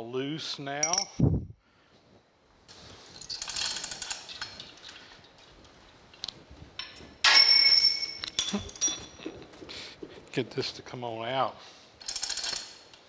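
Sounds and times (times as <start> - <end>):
metallic clatter with ringing: 0.8 - 1.2, 6.8 - 9.3
chain rattling through hoist: 3.2 - 4.6, 6.8 - 9.3, 12.0 - 12.8
fast ratchet clicks: 3.3 - 4.3, 12.0 - 12.8.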